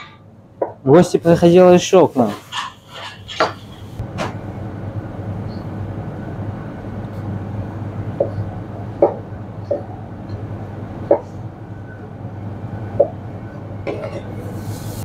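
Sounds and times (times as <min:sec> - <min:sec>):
low hum: 0:04.0 - 0:15.0.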